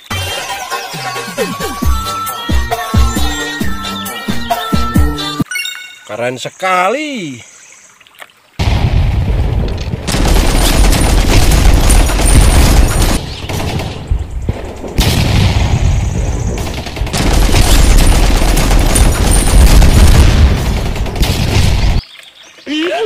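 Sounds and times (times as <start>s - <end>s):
booms: 8.6s - 22.0s
rapid machine-gun fire: 10.0s - 22.0s.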